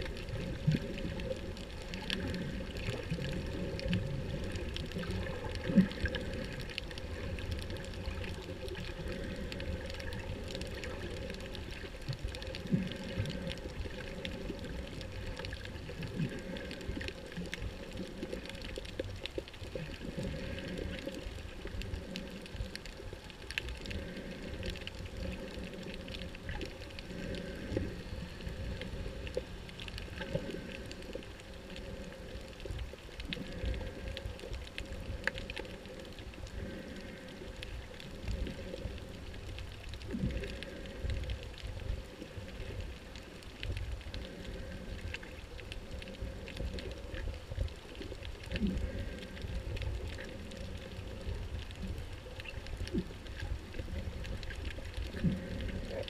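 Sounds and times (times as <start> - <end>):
faint underwater clicks: 0.0 - 56.0
underwater rumble of moving water: 0.0 - 56.0.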